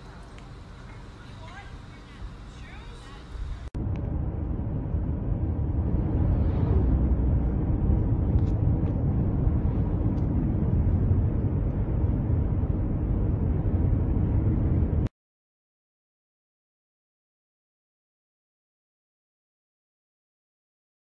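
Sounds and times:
car tyre and engine rumble: 0.0 - 15.1
wind: 0.0 - 15.1.

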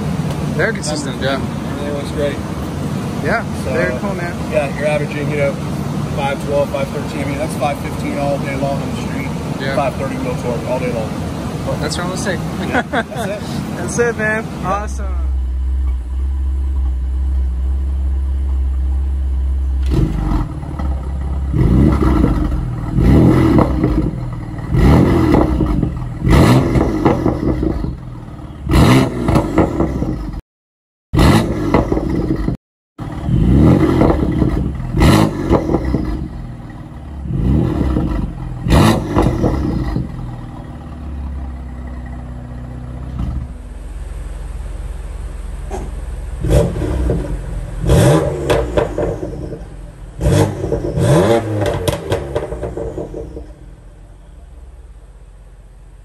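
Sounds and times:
car engine idling and revving: 0.0 - 30.4, 31.1 - 56.0
exhaust cracks and pops: 19.8 - 28.0, 31.3 - 32.6, 51.6 - 53.6.

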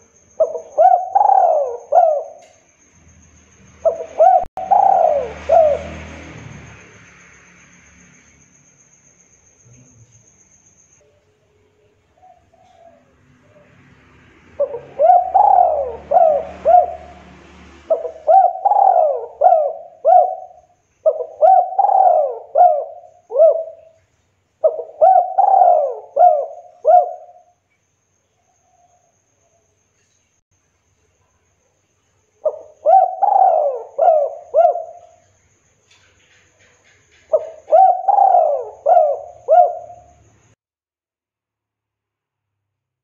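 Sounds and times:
dove cooing: 0.0 - 2.5, 3.8 - 6.1, 12.2 - 13.8, 14.6 - 24.0, 24.6 - 27.5, 32.4 - 35.2, 37.3 - 40.2.

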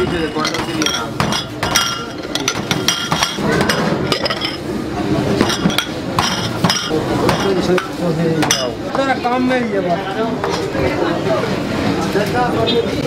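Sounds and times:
bowls clinking on steel counter: 0.0 - 4.7, 5.3 - 9.1.

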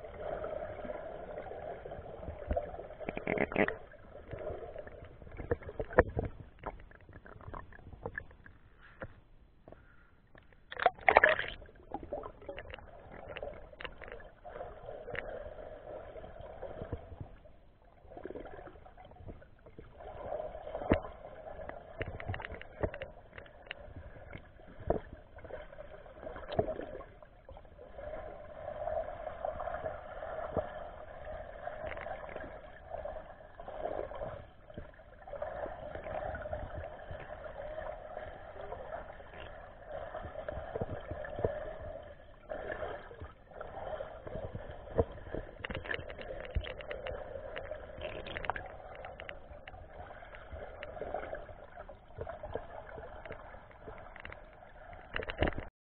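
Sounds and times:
muffled underwater swirling water: 0.0 - 55.7
sharp underwater clicks: 3.0 - 4.4, 5.0 - 14.3, 44.5 - 51.0, 53.2 - 55.7.

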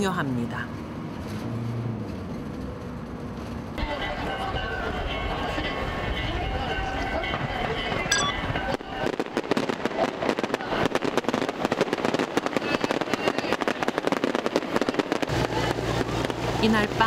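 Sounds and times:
fireworks crackling: 8.7 - 17.0.

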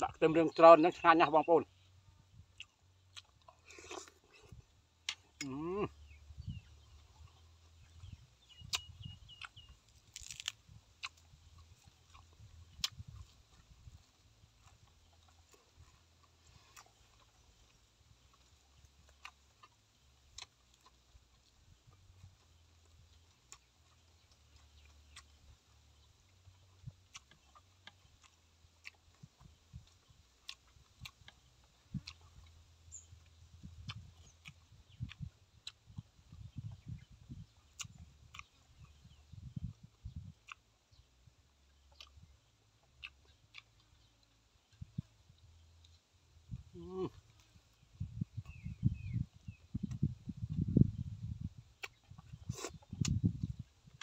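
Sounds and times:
close-up chewing: 1.6 - 54.0
wet mouth clicks and lip smacks: 8.1 - 14.0, 26.8 - 40.6, 41.9 - 42.3, 48.1 - 54.0.

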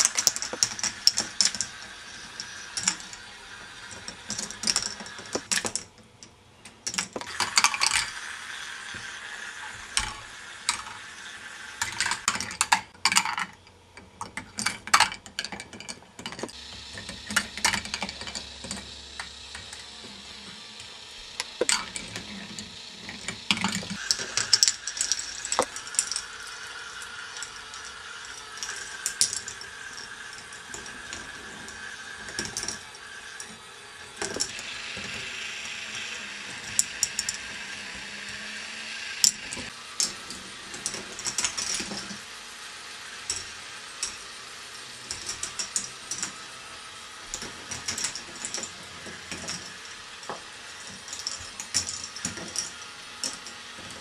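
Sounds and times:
motor-driven chain lift whirring: 0.0 - 13.6, 14.2 - 54.0
plastic balls rolling and clattering: 0.0 - 38.6, 39.2 - 42.2, 43.2 - 54.0
sharp clicks and knocks: 20.8 - 26.2.

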